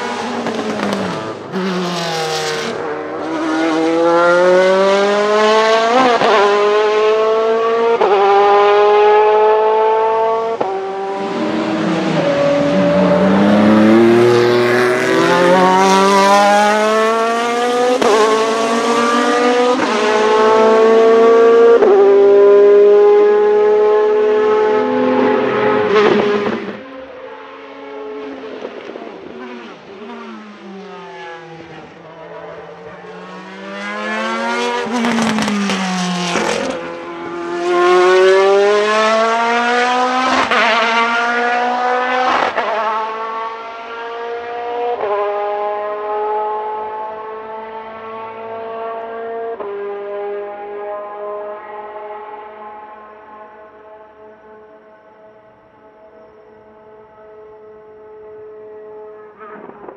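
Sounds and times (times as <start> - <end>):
race car engine accelerating: 0.0 - 54.3.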